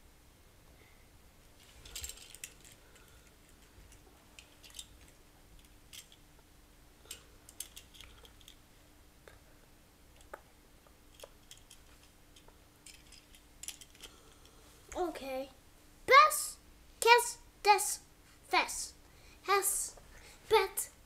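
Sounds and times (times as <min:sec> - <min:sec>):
toy cars clicking and rattling: 0:01.6 - 0:06.2, 0:07.0 - 0:08.6, 0:11.1 - 0:14.2.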